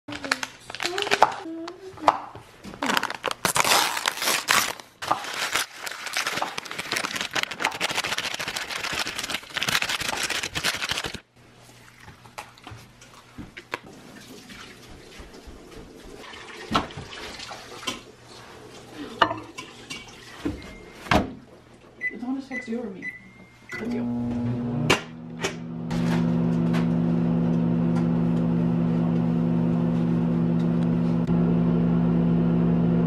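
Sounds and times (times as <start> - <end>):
paper packet tearing: 0.1 - 1.3, 2.8 - 11.3
oat flakes pouring into bowl: 5.0 - 11.2.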